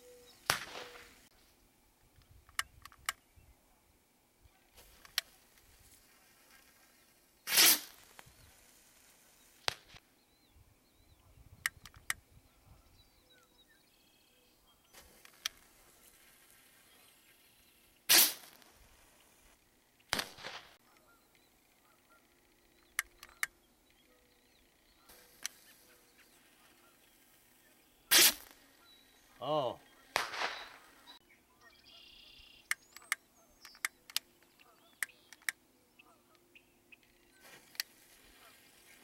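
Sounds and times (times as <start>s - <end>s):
sharp pop: 0.4s - 1.2s, 18.1s - 18.7s, 20.1s - 20.8s, 30.1s - 30.8s
bottle rocket whoosh: 7.5s - 8.0s
faint clicks: 20.9s - 24.2s.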